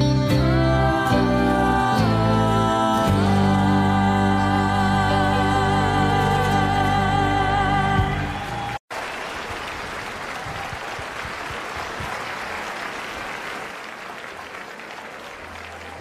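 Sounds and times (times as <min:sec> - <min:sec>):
audience applause: 0:07.8 - 0:16.0.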